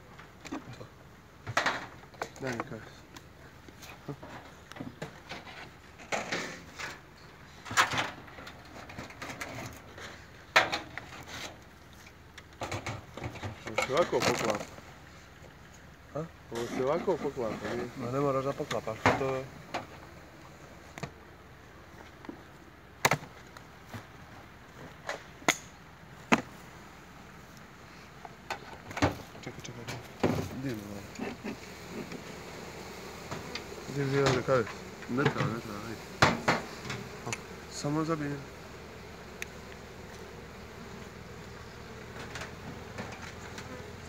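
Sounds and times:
beehive parts knocking: 26.2 - 26.6, 28.3 - 44.0.

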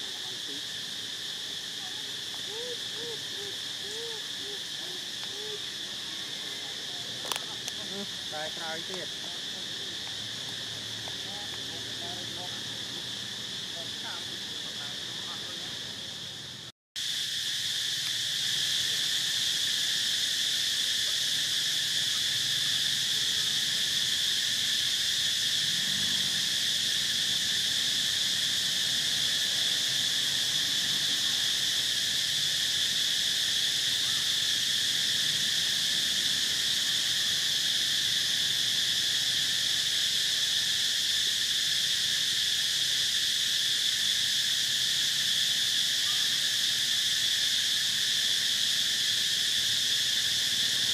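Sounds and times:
insects droning: 0.0 - 50.9.

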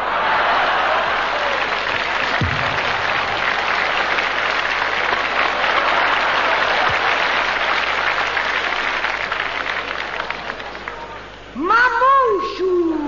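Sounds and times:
audience applauding: 0.0 - 11.3
dull low thumps: 2.4 - 3.4.

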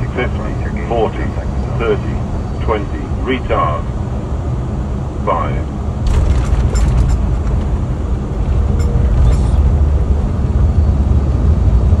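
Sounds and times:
airliner landing roll rumble: 0.0 - 12.0
light rattles: 6.1 - 10.0.

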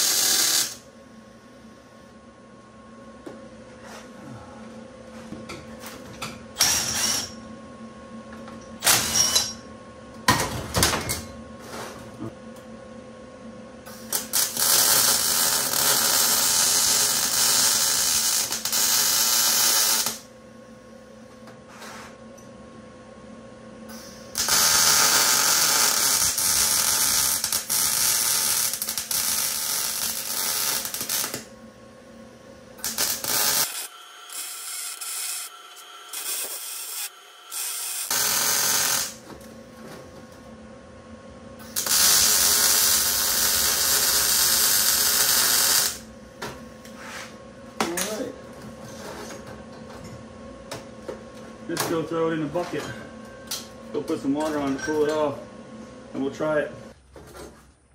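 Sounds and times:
welding arc crackling: 0.0 - 0.8, 13.9 - 20.3, 24.3 - 31.5, 32.8 - 39.2, 41.6 - 46.1.

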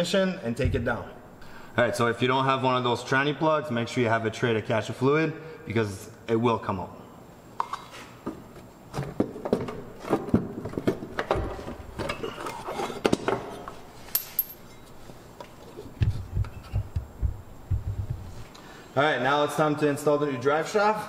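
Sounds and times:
dull low thumps: 16.0 - 18.4.

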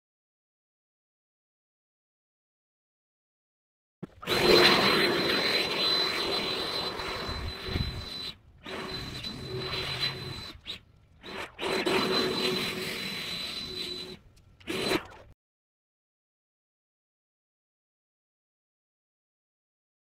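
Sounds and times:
yard tool whining: 4.1 - 15.3.

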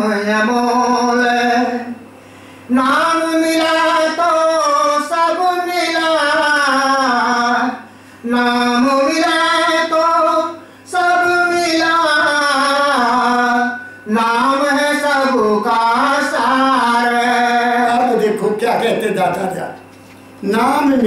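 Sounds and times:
breaths: 2.2 - 2.7, 7.8 - 8.3, 10.6 - 10.9
person singing unaccompanied: 2.7 - 18.6.

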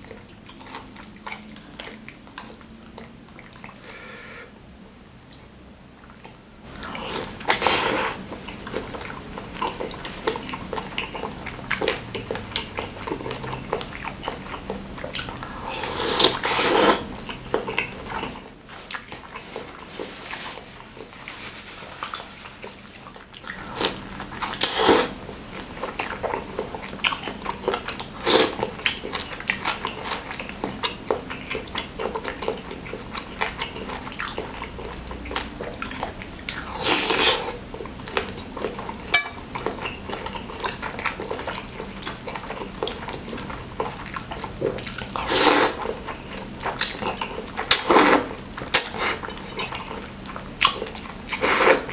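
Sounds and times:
wet chewing and mouth smacks: 0.0 - 3.9, 5.3 - 15.6, 16.2 - 51.9
slurping noodles: 15.6 - 17.2, 23.6 - 25.2, 28.2 - 28.7, 36.7 - 37.6, 44.3 - 46.3, 47.2 - 49.6, 51.3 - 51.9.

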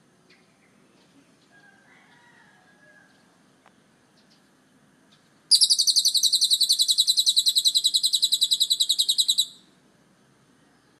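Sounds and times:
lovebird chattering trill: 5.5 - 9.7.

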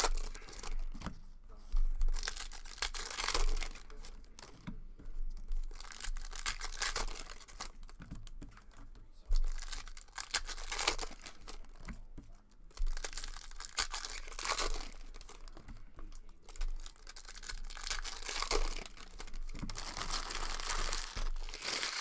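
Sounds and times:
foil wrapper crinkling and tearing: 0.0 - 0.9, 2.0 - 4.5, 5.4 - 7.9, 9.4 - 11.9, 12.7 - 15.6, 16.2 - 22.0.

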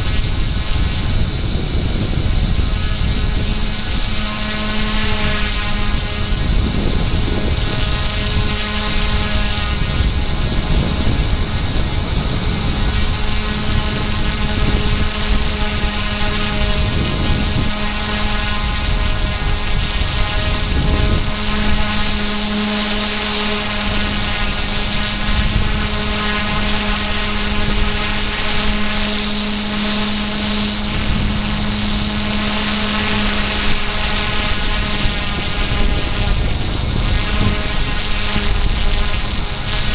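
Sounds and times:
electric motor whine: 0.0 - 39.9
helicopter rotor buzz: 0.0 - 39.9.

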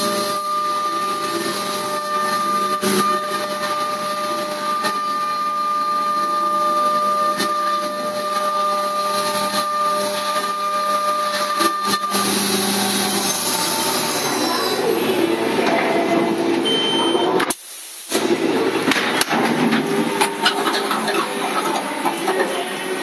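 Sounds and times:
milling machine cutting tone: 0.0 - 17.5.

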